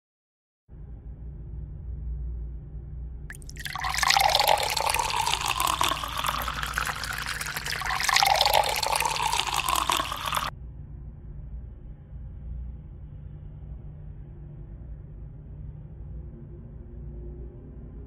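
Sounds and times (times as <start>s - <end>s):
tap water running into sink: 3.3s - 10.5s.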